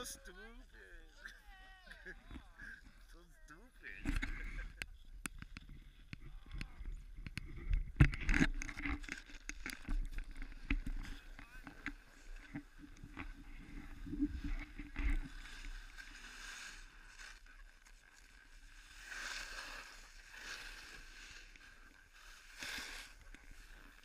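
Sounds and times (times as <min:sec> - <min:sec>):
skis scraping over snow: 0:09.0 - 0:24.0.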